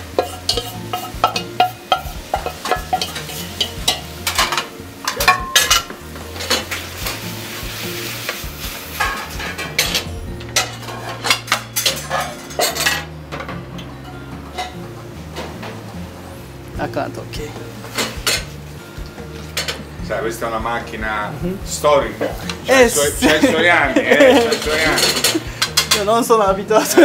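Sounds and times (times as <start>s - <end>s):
wooden spatula scraping a metal pan: 0.0s - 13.1s
sauce sizzling: 0.0s - 27.0s.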